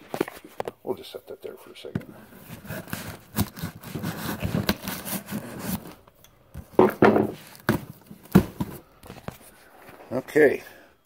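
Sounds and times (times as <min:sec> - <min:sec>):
cardboard box rubbing and scraping: 0:02.4 - 0:06.0
knocks on cardboard box: 0:06.8 - 0:08.8.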